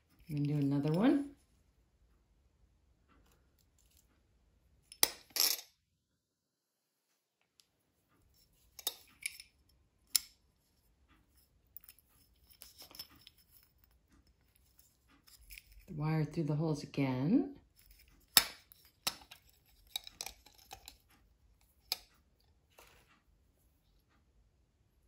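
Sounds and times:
small metal parts clinking on wood: 0:11.8 - 0:15.9, 0:17.8 - 0:21.1.

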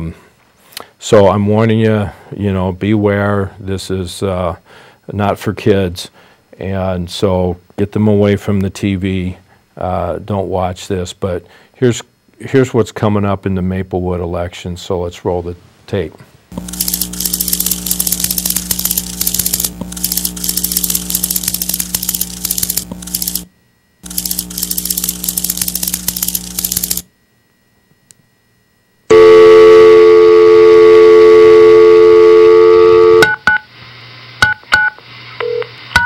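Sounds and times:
steady low hum: 0:01.3 - 0:34.4
loud steady electronic tone: 0:16.5 - 0:33.7.

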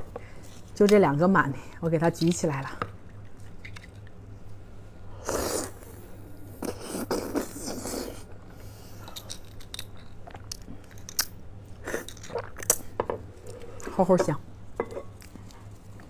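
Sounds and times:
slurping and chewing: 0:05.2 - 0:12.8.

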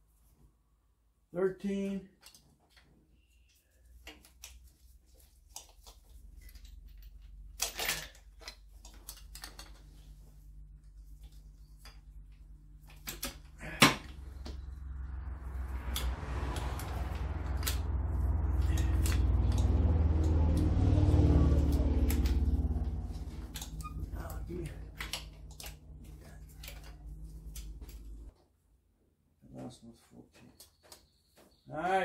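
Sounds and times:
low rumble: 0:14.1 - 0:28.3.

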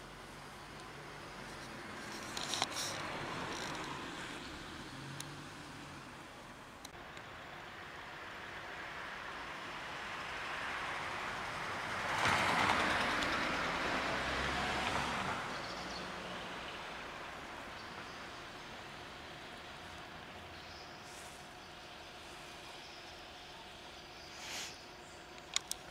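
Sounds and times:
vehicle driving past: 0:10.6 - 0:23.2.

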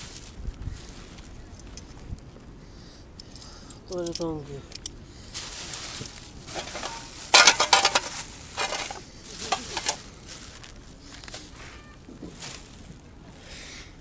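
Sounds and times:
faint handling noises: 0:00.8 - 0:13.4
cookware clattering and rustling: 0:06.5 - 0:10.0.

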